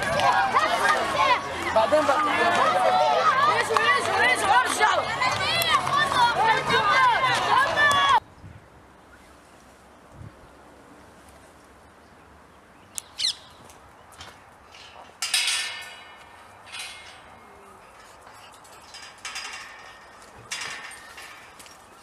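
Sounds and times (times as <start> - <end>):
steel gate clanking: 14.7 - 22.0.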